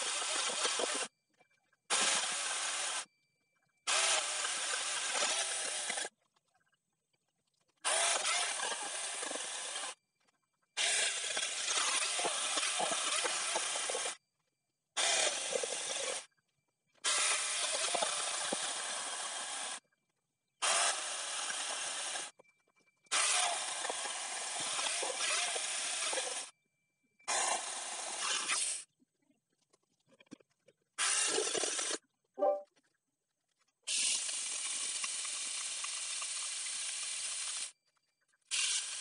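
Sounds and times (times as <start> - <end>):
chainsaw grinder cutting log: 7.9 - 9.9, 10.8 - 14.1, 15.0 - 16.2, 17.1 - 19.8.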